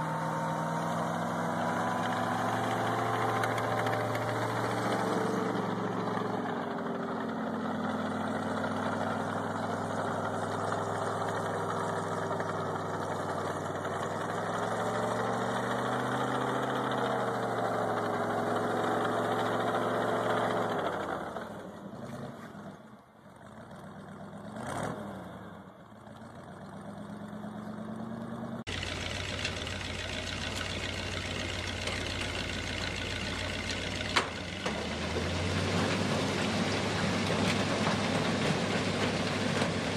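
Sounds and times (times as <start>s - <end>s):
snowcat engine running under load: 0.0s - 22.7s, 25.4s - 39.9s
snowcat engine idling: 28.6s - 35.2s.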